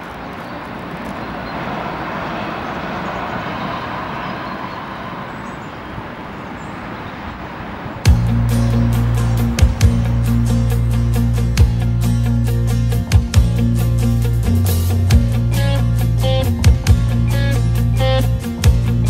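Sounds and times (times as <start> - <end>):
steady rushing background noise: 0.0 - 15.3
music with deep bass: 8.1 - 19.0.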